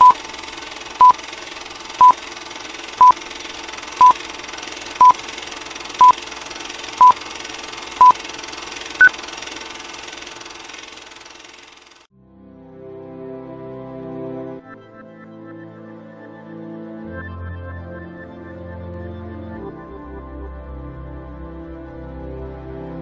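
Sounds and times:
countdown beeps: 0:01.0 - 0:01.2, 0:05.0 - 0:05.2.

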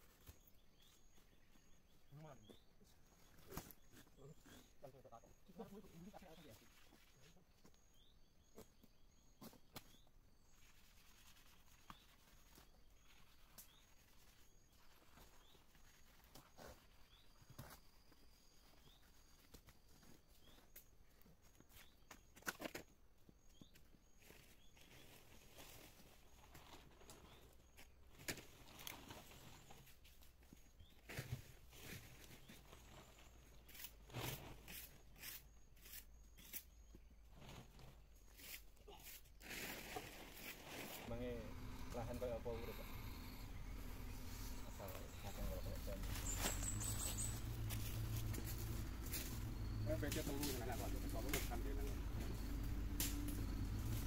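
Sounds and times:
footsteps crunching dry leaves: 0:39.4 - 0:41.9, 0:43.7 - 0:52.4
short high rising chirp: 0:41.1 - 0:48.6.

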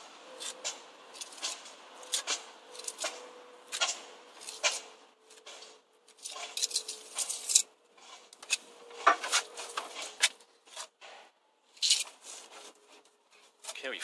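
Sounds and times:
trowel scraping mortar: 0:00.3 - 0:10.9.

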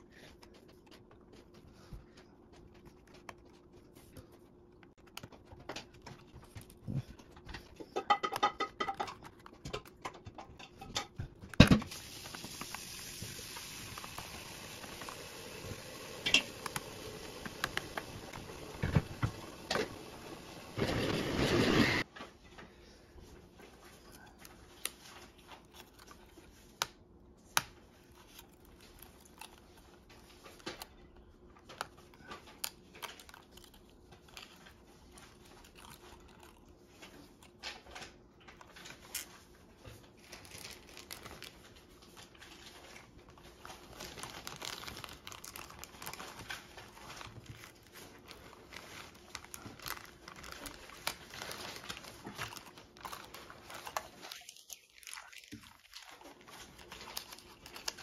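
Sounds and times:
plastic rustling: 0:27.4 - 0:58.0.

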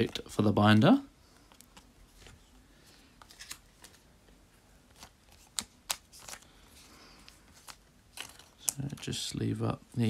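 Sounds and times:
cards clicking and flicking: 0:03.2 - 0:04.0, 0:04.9 - 0:06.6, 0:07.2 - 0:09.2.

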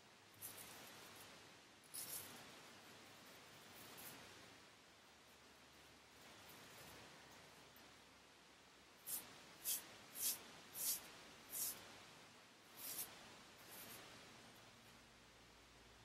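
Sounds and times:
straight razor scraping stubble: 0:09.0 - 0:11.8, 0:12.8 - 0:14.0.

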